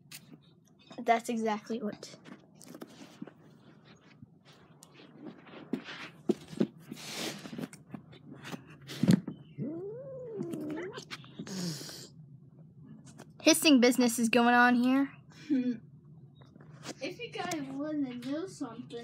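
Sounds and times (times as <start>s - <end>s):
cats scuffling: 2.2s - 9.4s.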